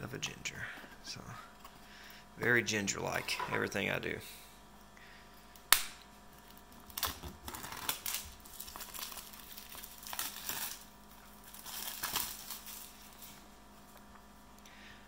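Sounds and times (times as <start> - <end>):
plastic wrap crinkling: 6.3 - 13.4.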